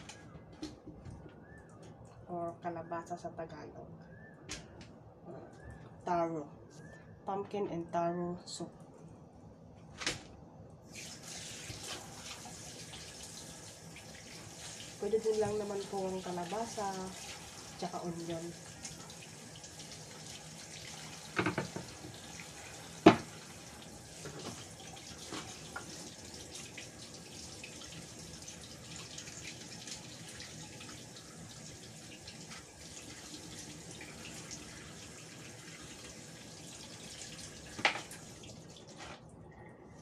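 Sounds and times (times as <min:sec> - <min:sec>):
tap running into sink: 0:21.3 - 0:22.2, 0:23.0 - 0:23.4, 0:37.7 - 0:38.2
knocks on wooden cutting board: 0:21.4 - 0:21.8, 0:23.0 - 0:23.3.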